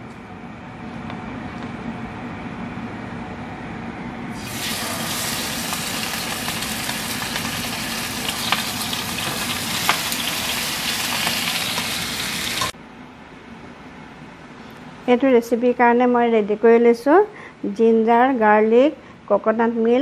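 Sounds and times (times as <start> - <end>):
fish sizzling in hot oil: 4.4 - 12.7.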